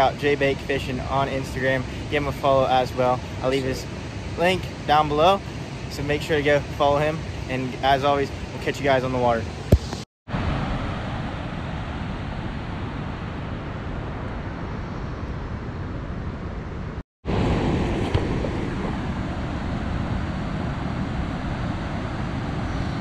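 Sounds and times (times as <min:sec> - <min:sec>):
water roaring from dam outlet: 0:00.0 - 0:09.6.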